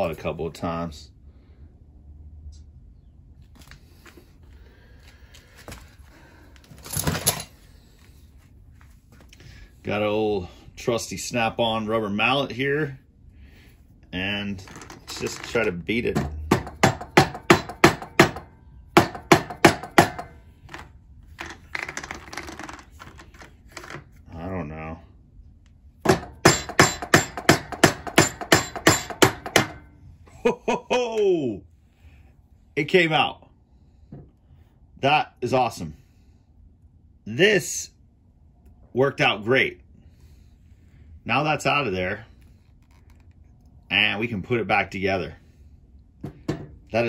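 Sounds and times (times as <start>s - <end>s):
tools rattling and rustling: 6.6s - 8.1s, 14.6s - 18.5s, 19.1s - 24.2s.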